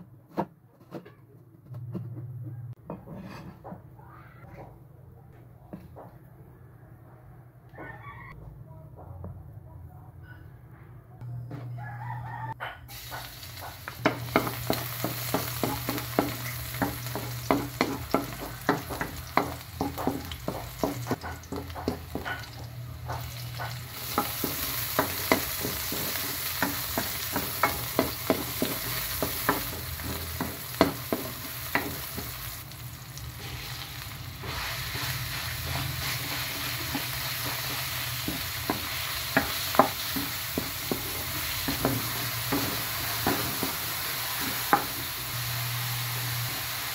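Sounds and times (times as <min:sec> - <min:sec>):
wooden spatula scraping a wok: 0:02.9 - 0:03.7, 0:13.2 - 0:32.7, 0:33.4 - 0:45.2
onion sizzling in hot oil: 0:12.9 - 0:46.9.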